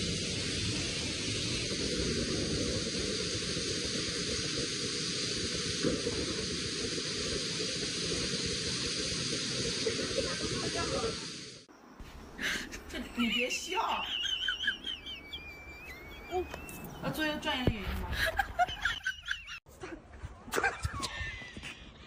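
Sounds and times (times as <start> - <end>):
loud rushing hiss: 0.0 - 12.3.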